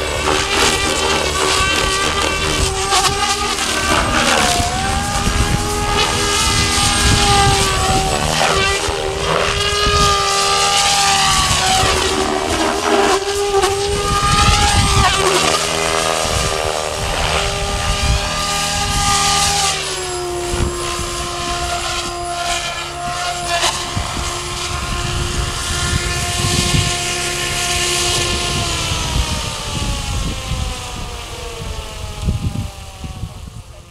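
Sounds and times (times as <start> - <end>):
model helicopter rotor whine: 0.0 - 33.9.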